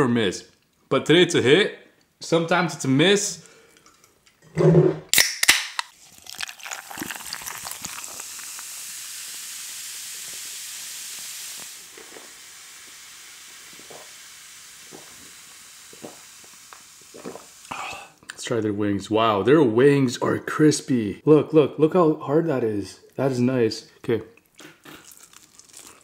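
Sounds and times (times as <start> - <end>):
fizzy drink hissing: 5.2 - 18.3.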